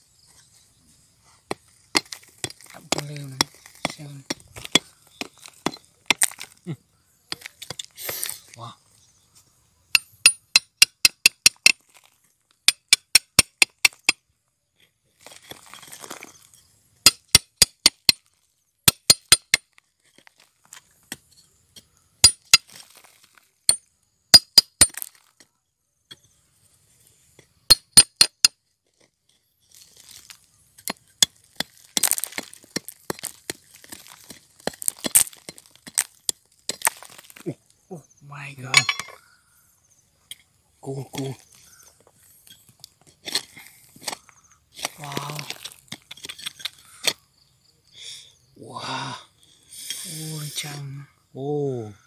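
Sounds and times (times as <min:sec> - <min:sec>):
scraping and crumbling dirt: 0:00.0 - 0:39.5, 0:40.2 - 0:47.5
digging tool striking rock: 0:01.5 - 0:06.7, 0:07.3 - 0:08.5, 0:09.9 - 0:14.2, 0:15.2 - 0:20.4, 0:21.0 - 0:25.5, 0:27.6 - 0:28.6, 0:29.9 - 0:37.4, 0:38.7 - 0:39.2, 0:42.4 - 0:47.2.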